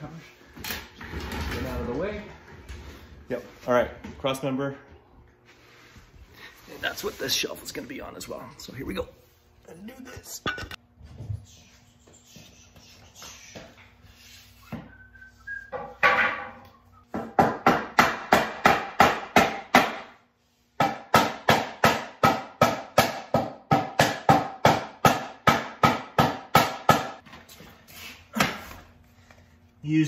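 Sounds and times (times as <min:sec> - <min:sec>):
hammer striking wood: 0:15.7 - 0:20.2, 0:20.8 - 0:27.2.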